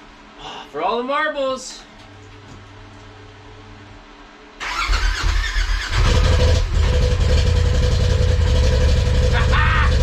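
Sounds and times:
engine starter cranking: 4.6 - 6.8
engine running steadily: 5.3 - 10.0.

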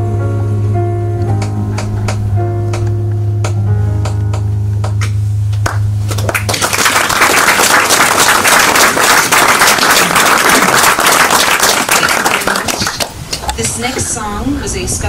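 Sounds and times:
held musical note: 0.0 - 9.5
audience applause: 5.6 - 13.6.

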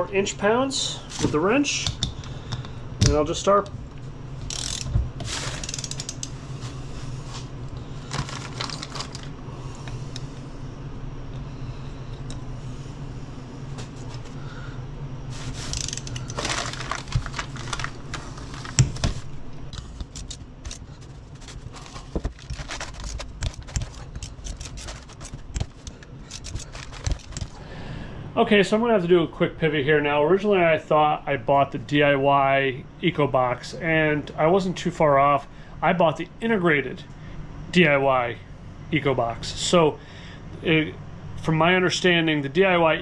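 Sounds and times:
low hum: 0.0 - 30.5
ratchet wrench clicking: 4.4 - 6.4, 15.7 - 16.4.

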